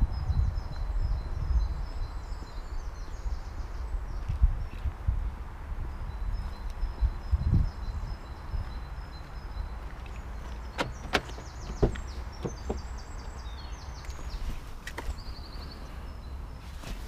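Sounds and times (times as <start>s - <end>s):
car door clicks: 10.7s - 12.9s
car door latch click: 10.8s - 12.9s.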